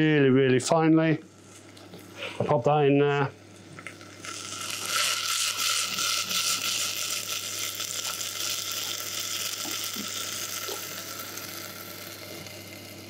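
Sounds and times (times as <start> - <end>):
chili sizzling in oil: 3.8 - 13.0.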